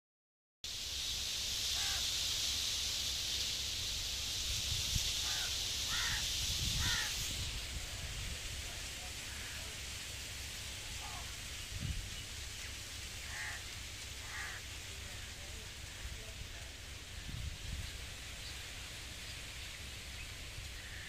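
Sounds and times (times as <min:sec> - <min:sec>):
wind rustling tree leaves: 0:00.7 - 0:21.0
bird calling: 0:01.7 - 0:02.1, 0:05.2 - 0:07.4, 0:10.9 - 0:11.5
wind rumble on microphone: 0:04.4 - 0:08.9, 0:11.0 - 0:12.3, 0:15.9 - 0:18.7.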